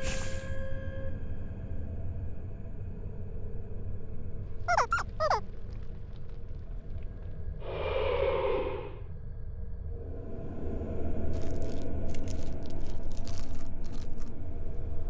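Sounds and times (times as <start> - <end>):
high-pitched falling squeaks: 4.7 - 5.4.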